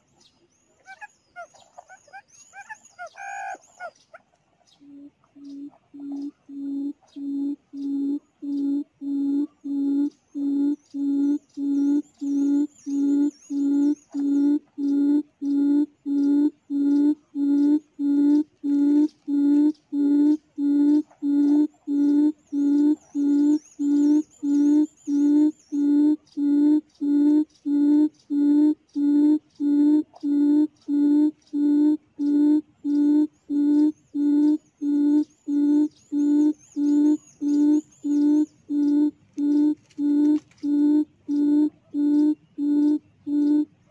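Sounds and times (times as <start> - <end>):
faint high twittering: 0.0 - 43.9
quail call through speaker: 0.8 - 4.0.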